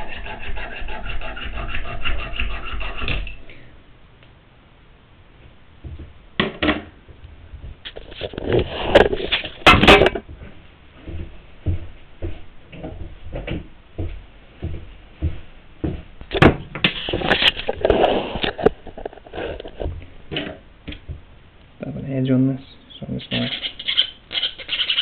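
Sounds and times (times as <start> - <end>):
tools knocking and clattering: 9.0 - 10.4.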